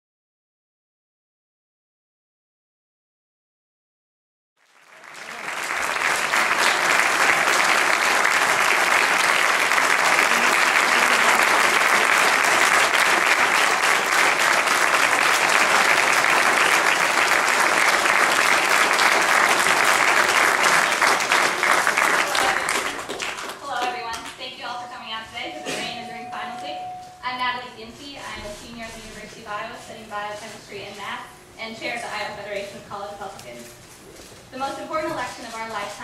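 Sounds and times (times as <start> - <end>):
audience applauding: 4.6 - 24.4.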